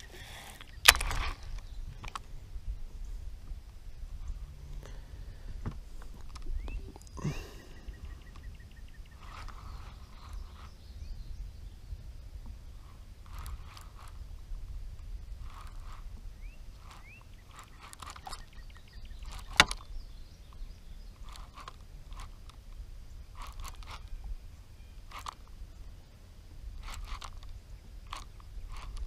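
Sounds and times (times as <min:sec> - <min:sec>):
sharp click: 0:00.6 - 0:02.2
fishing reel whirring: 0:06.2 - 0:10.8, 0:12.8 - 0:25.9, 0:26.6 - 0:29.0.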